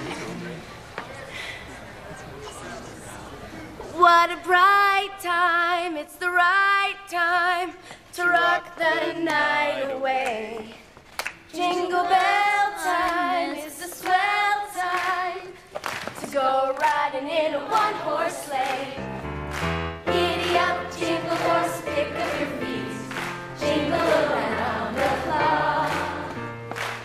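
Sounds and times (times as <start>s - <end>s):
woman singing with vibrato: 3.9s - 10.9s, 11.5s - 18.9s.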